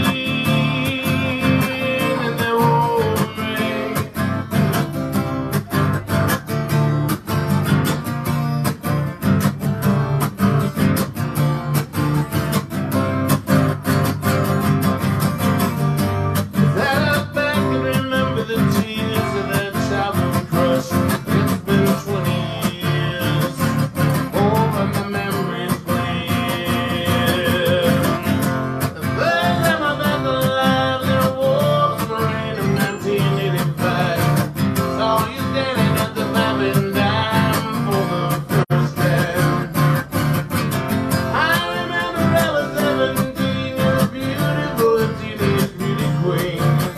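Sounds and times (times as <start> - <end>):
man singing: 0.0 - 6.4, 16.5 - 40.4, 41.2 - 46.9
acoustic guitar strumming: 0.0 - 46.9.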